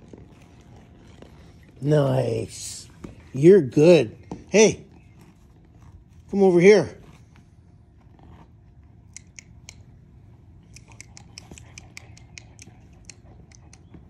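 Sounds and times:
puppy teeth clicking: 9.1s - 9.9s, 10.6s - 14.0s.

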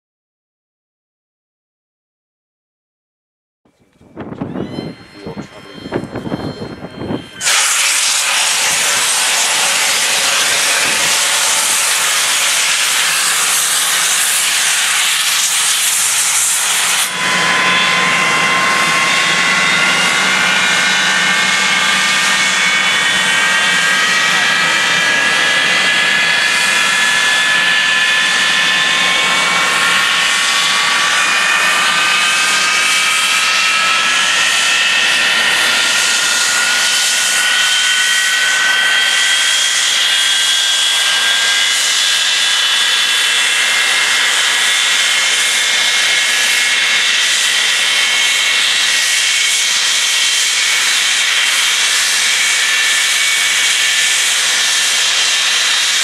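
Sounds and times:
jet turbine whine: 3.8s - 56.0s
jet hiss: 7.4s - 17.1s.

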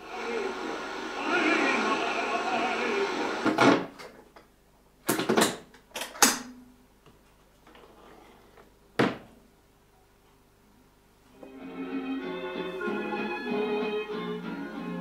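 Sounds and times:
low steady radio tone: 0.0s - 3.6s
radio static bursts: 0.0s - 3.9s.

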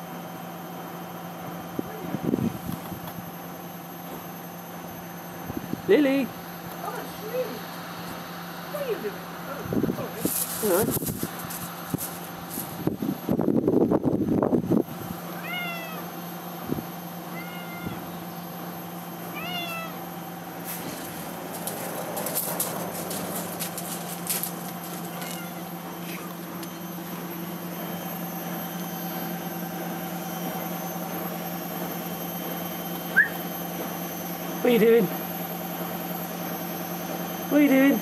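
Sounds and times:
cat meowing: 15.3s - 16.1s, 17.3s - 18.2s, 19.3s - 20.0s, 24.9s - 25.7s.

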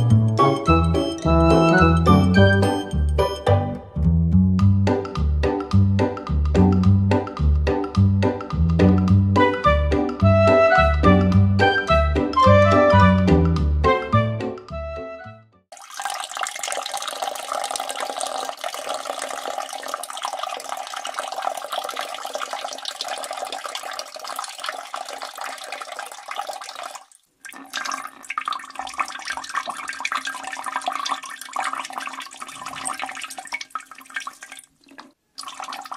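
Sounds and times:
music notes: 0.0s - 7.3s, 9.0s - 15.5s
running water: 15.7s - 35.9s.

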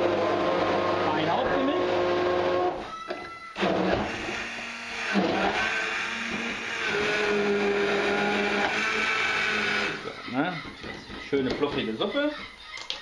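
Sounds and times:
stick blender motor humming: 0.0s - 2.8s, 3.6s - 10.1s.

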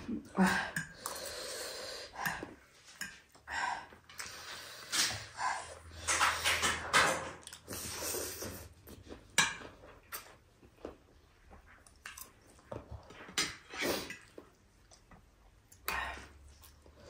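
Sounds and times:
chewing and slurping food: 7.4s - 17.0s.

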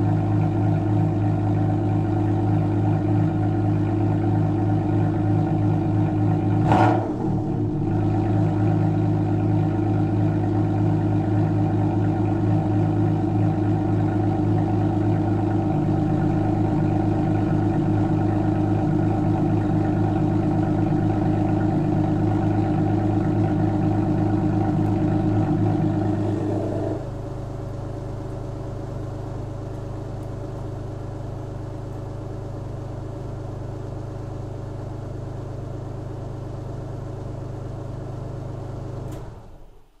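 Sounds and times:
car engine idling: 0.0s - 40.0s.

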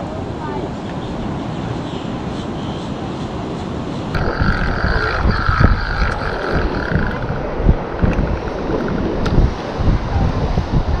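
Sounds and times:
wind buffeting microphone: 3.7s - 11.0s
high steady whine: 4.2s - 9.8s.

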